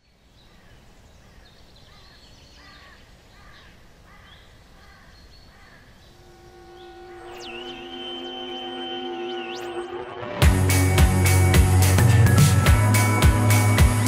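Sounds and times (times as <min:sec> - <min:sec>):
birds calling: 0:00.0 - 0:10.0.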